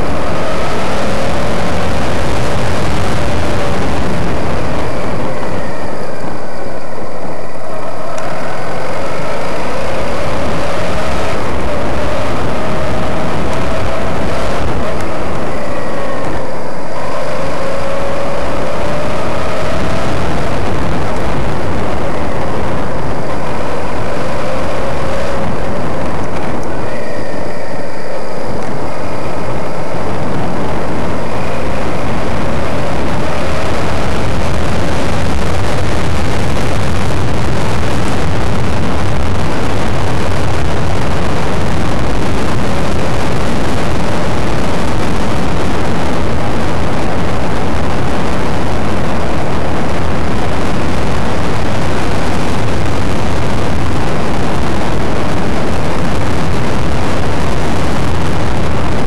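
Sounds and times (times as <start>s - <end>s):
motorcycle engine running: 0.0s - 59.0s
wind rush on microphone: 0.0s - 59.0s.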